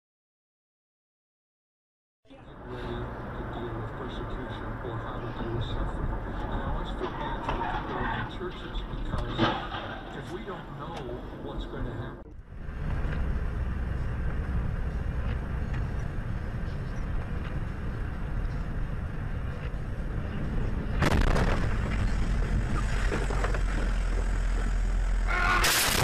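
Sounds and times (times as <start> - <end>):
vehicle engine and tyre rumble: 2.3 - 26.0.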